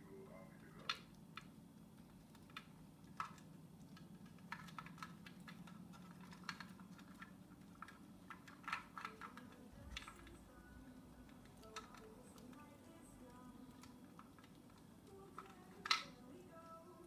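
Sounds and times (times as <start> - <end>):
parrot beak tapping plastic toy: 2.4 - 16.8.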